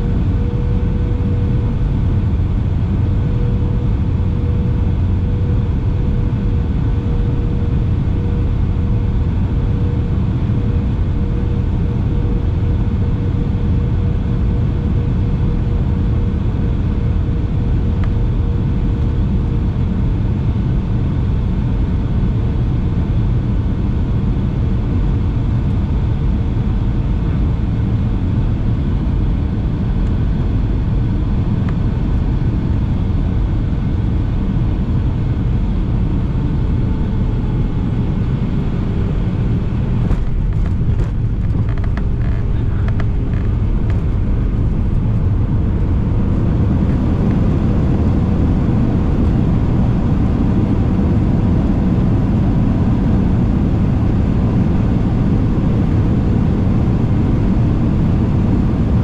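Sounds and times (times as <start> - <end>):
aircraft cabin rumble: 0.0 - 59.0.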